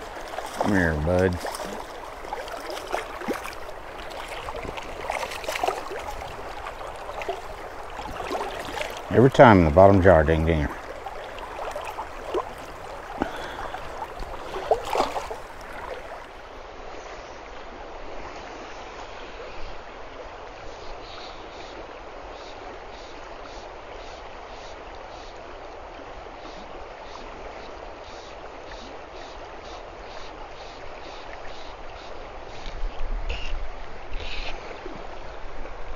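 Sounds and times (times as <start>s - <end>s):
wading splashes: 0.0s - 16.6s
river water rushing: 0.0s - 17.0s.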